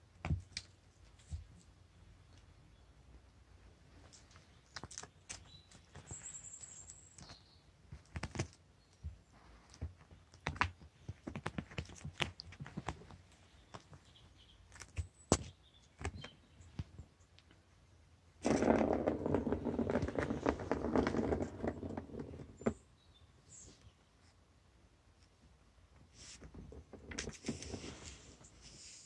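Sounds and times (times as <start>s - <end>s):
rustling scrape on carpet: 26.1s - 26.5s, 27.3s - 29.0s.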